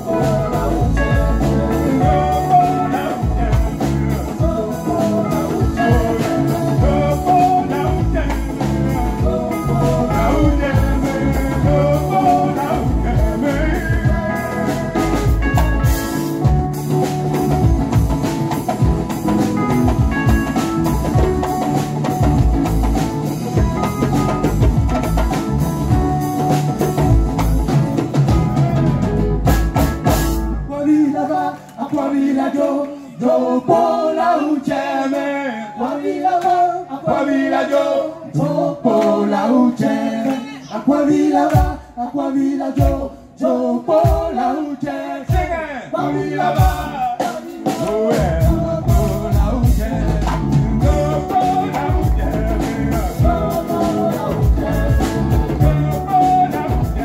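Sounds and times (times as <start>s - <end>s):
drums steady beat: 0.0s - 30.7s, 41.4s - 42.0s, 42.8s - 43.1s, 43.9s - 44.6s, 45.2s - 45.7s, 46.3s - 57.0s
bass line: 0.0s - 31.1s, 46.0s - 57.0s.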